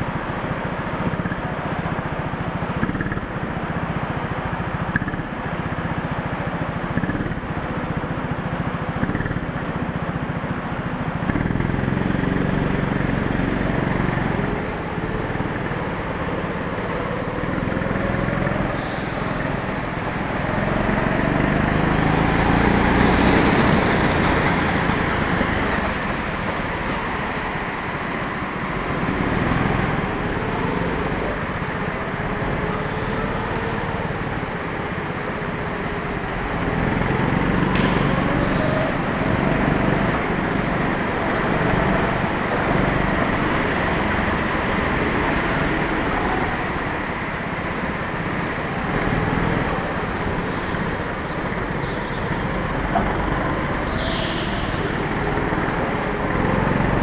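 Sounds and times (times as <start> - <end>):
go-kart engine running: 0.0 - 57.0
high squeaks: 49.7 - 57.0.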